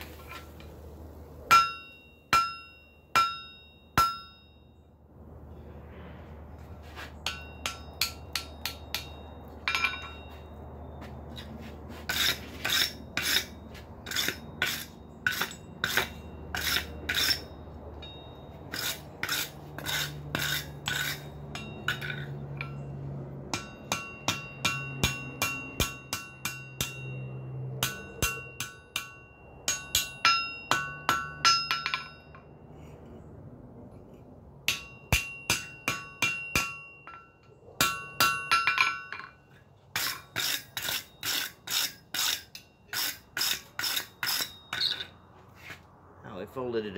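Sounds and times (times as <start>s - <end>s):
hammer striking metal on anvil: 1.5s - 4.7s, 7.2s - 10.6s, 12.1s - 22.9s, 23.5s - 32.5s, 34.7s - 45.1s.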